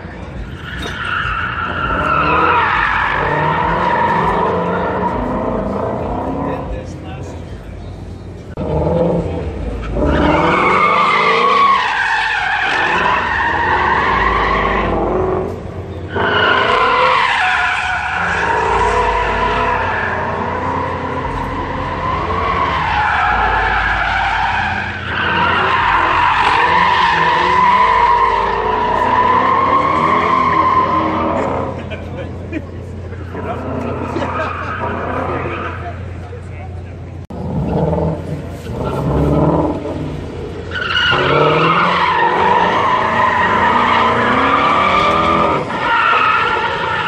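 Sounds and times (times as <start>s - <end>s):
car engine revving hard: 8.5s - 11.8s, 37.3s - 47.0s.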